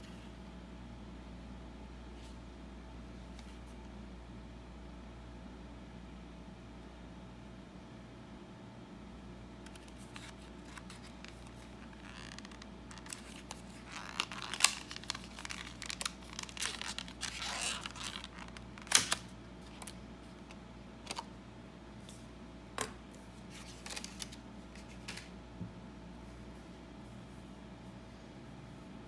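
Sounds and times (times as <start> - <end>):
blister pack crinkling and tearing: 9.6 - 21.3.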